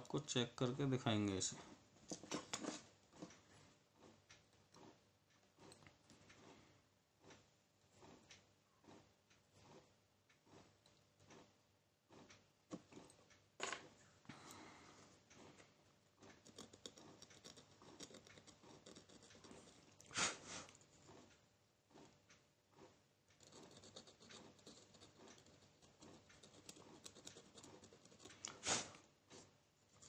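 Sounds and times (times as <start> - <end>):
tweezers scratching on metal: 16.3 - 20.1, 23.4 - 28.6.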